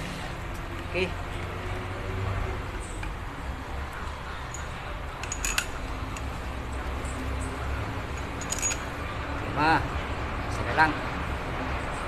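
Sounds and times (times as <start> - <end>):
metal parts clinking: 4.5 - 6.4, 8.2 - 8.9.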